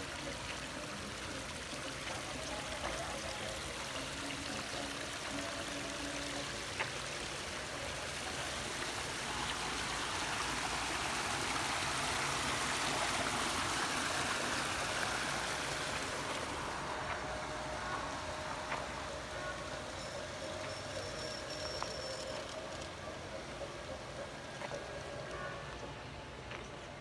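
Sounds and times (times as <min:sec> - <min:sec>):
water splashing down rock cascade: 0:00.0 - 0:25.2.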